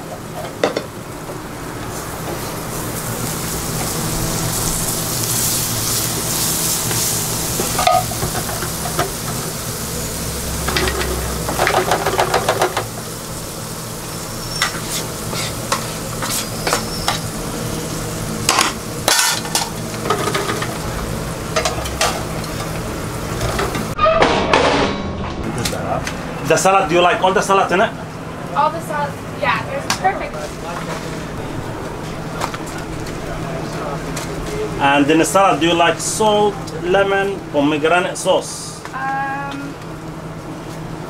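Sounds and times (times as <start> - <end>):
hot oil sizzling: 0.0 - 24.0, 25.8 - 41.0
metal utensils clattering: 18.5 - 20.7.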